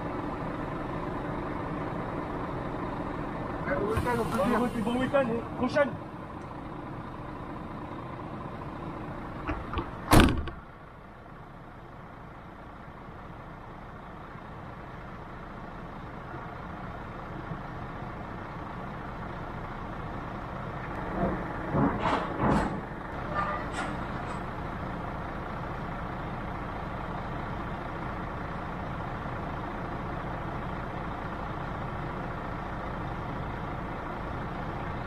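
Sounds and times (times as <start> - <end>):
truck engine running: 0.0 - 35.0
door slam: 10.1 - 10.6.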